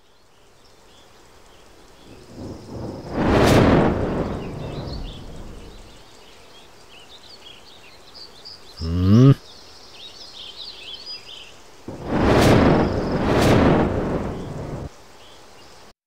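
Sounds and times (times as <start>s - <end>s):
loud rushing whoosh: 2.7s - 5.9s, 11.9s - 14.9s
birds chirping: 3.9s - 6.4s, 8.5s - 9.8s.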